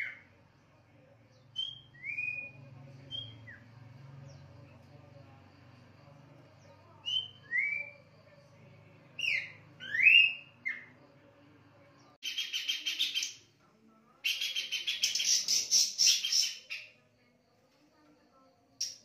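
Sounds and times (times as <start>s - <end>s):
bird whistled notes: 7.0s - 8.1s, 9.2s - 10.9s
bird harsh chattering: 12.2s - 13.4s, 14.2s - 16.9s.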